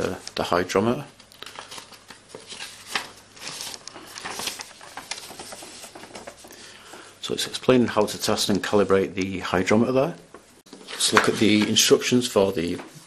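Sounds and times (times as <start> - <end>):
paper rustling: 1.2 - 8.9, 10.3 - 13.0.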